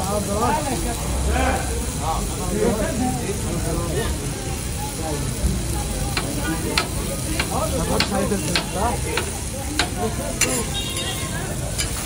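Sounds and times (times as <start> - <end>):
food sizzling: 0.0 - 12.0
metal spatula clacking on griddle: 6.1 - 12.0.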